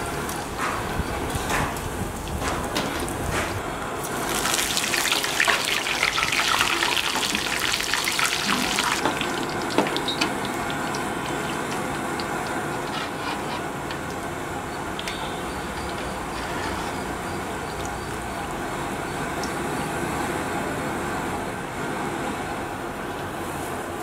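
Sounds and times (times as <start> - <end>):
leaves sizzling in hot oil: 4.0 - 19.6
oil popping: 4.2 - 16.2.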